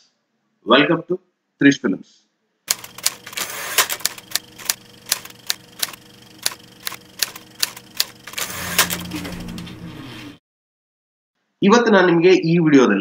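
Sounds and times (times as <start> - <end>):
typewriter key strikes: 2.7 - 9.6
typewriter carriage sliding back: 2.7 - 10.4.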